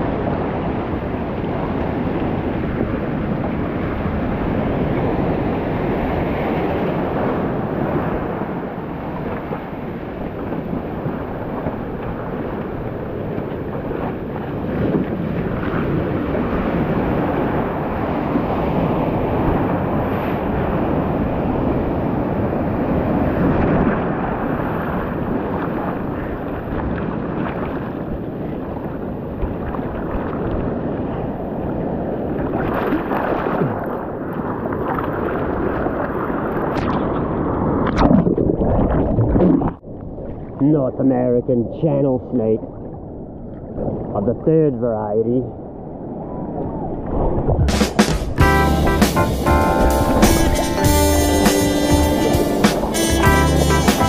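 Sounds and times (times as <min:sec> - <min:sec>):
wind buffeting microphone: 0:45.5 - 0:48.5
surf rushing: 0:47.0 - 0:54.0.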